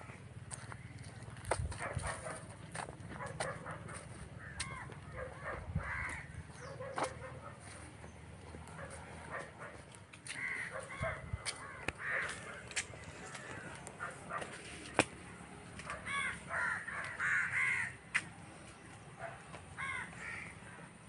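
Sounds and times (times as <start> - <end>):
crows cawing: 4.2 - 6.8, 10.2 - 14.1, 15.9 - 18.2, 19.7 - 20.9.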